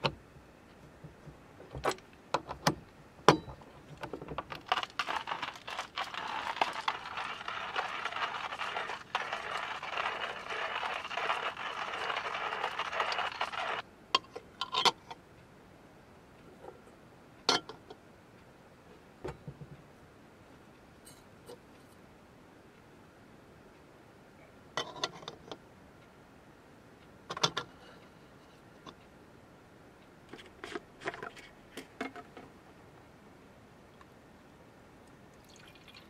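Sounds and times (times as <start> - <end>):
coffee grinder crunching beans: 4.5 - 13.8.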